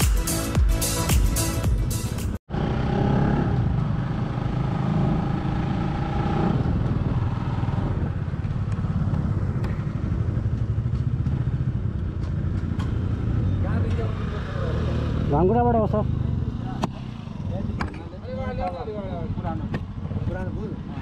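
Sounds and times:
motorcycle engine running: 2.5s - 14.0s.

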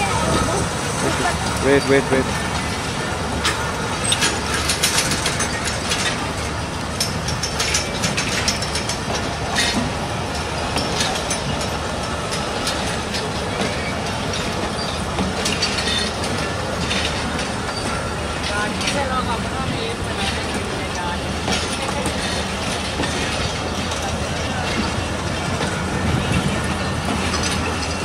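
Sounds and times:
train coaches rumbling past: 0.0s - 28.0s
metallic clicks and clanks: 3.4s - 19.2s, 21.4s - 28.0s.

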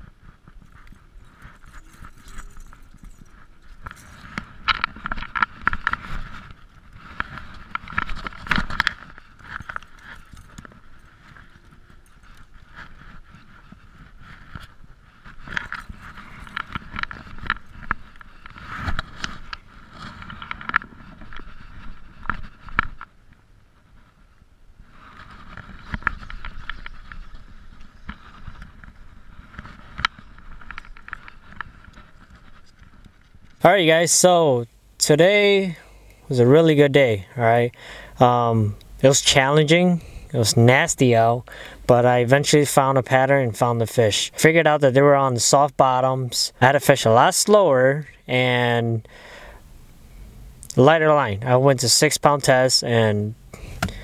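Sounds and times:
metal chain clinking: 0.6s - 6.5s, 7.5s - 13.2s.

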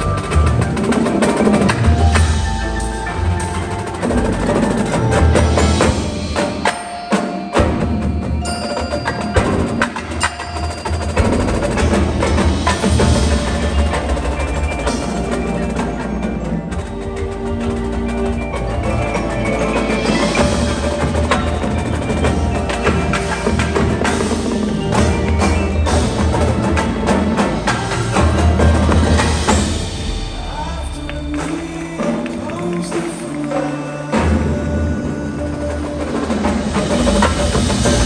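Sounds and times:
marching drums: 0.0s - 38.0s
marimbas and mallet keyboards: 0.0s - 38.0s.

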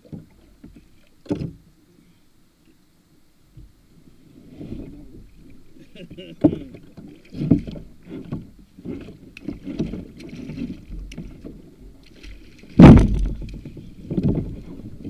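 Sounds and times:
water sloshing: 4.3s - 15.0s
knocks against kayak: 12.7s - 14.6s.

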